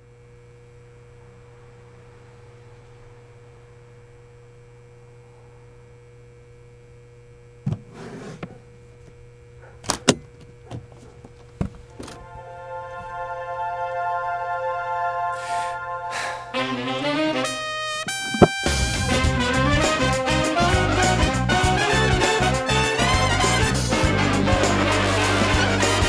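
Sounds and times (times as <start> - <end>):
low electrical hum: 0.0 - 19.6
thump and rustle: 7.6 - 8.6.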